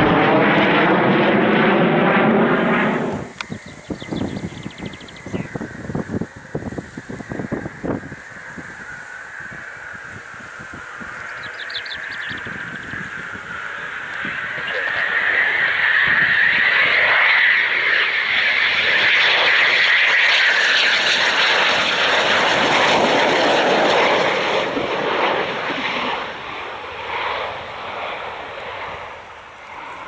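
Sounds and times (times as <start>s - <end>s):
jet passing low overhead: 0.0s - 30.0s.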